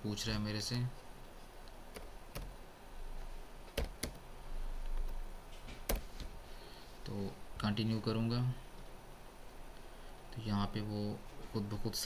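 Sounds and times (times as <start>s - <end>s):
low background hum: 0.0s - 12.0s
keyboard keystrokes: 1.9s - 2.6s, 3.7s - 4.2s.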